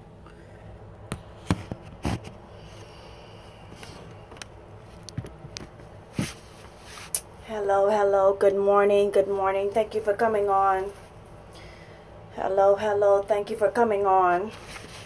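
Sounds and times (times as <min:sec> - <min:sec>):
low room hum: 0:00.0 - 0:15.0
phone handling knocks and rubs: 0:01.1 - 0:02.4.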